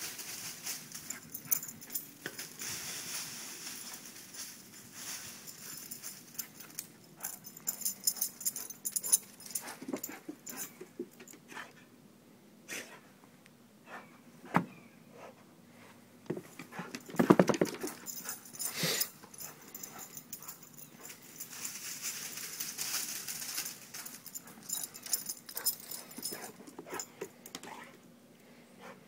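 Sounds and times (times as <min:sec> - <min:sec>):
dog paws crunching leaves: 0:00.0 - 0:06.4, 0:21.4 - 0:24.3.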